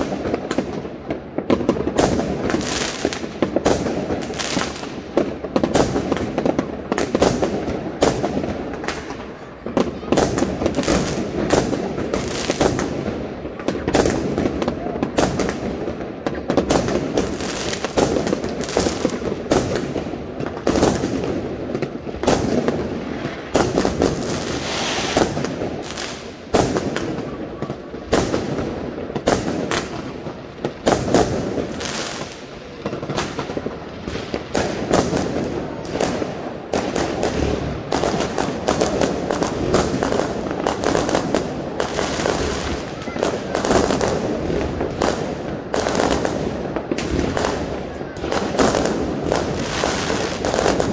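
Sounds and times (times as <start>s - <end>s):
fireworks bangs and crackles: 0.0s - 50.9s.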